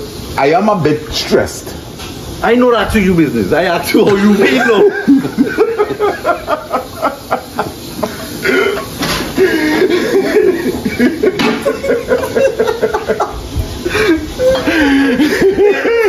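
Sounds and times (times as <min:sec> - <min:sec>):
men speaking words: 0:02.4 - 0:05.2
men laughing: 0:04.0 - 0:16.0.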